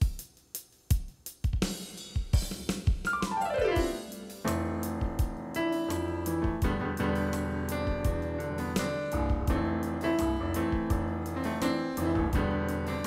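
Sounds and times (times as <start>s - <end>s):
steady drum beat: 0.0s - 11.4s, 12.0s - 12.8s
electronic keyboard playing: 3.1s - 5.4s.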